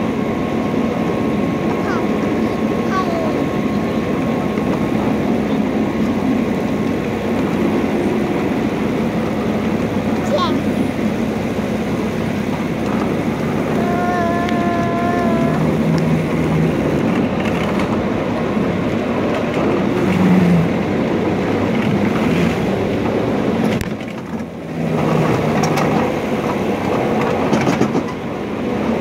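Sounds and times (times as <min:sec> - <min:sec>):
miniature train wheels clattering: 0:23.0 - 0:28.2.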